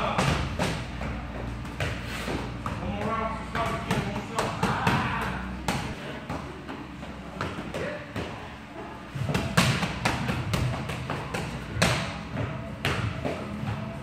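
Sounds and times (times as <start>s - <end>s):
boxing gloves hitting mitts: 0.0s - 8.4s, 9.1s - 13.9s.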